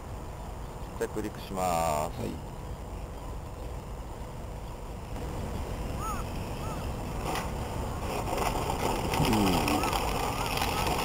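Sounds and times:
wind noise on microphone: 2.4 - 11.0
model plane motor: 6.0 - 11.0.

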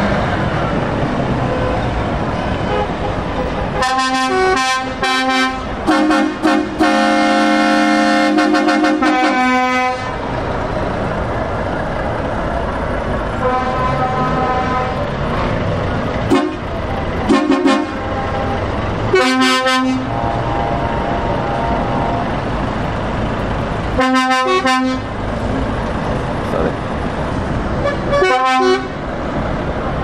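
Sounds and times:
diesel engines running: 0.0 - 30.0
truck air horns: 2.6 - 10.2, 13.4 - 15.1, 16.3 - 20.3, 24.0 - 25.2, 27.8 - 29.0.

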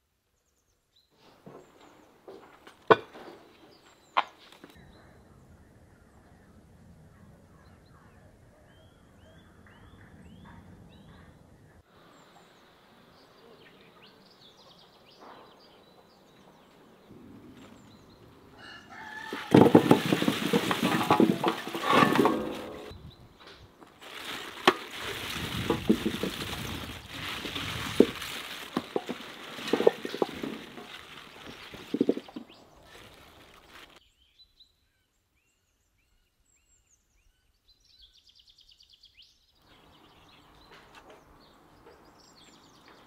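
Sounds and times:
rooster crowing: 18.5 - 20.0
small birds chirping: 22.9 - 43.0.

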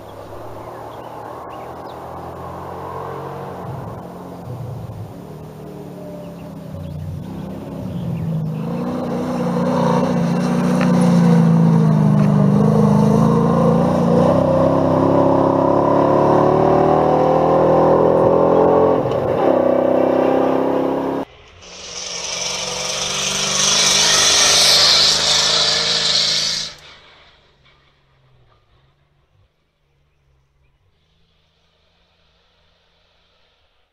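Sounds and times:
truck engine accelerating: 0.0 - 33.7
tyres and gravel rushing hiss: 21.3 - 29.2, 31.0 - 33.9.

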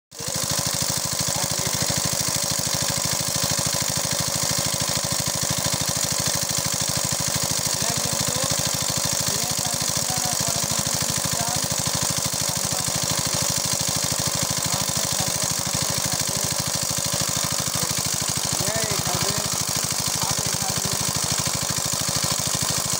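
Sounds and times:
small engine running steadily: 0.1 - 22.9.

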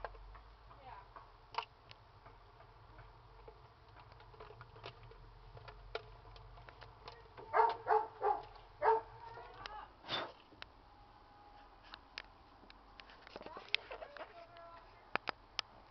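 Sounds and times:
crackling clicks of burning chip: 11.9 - 15.7.

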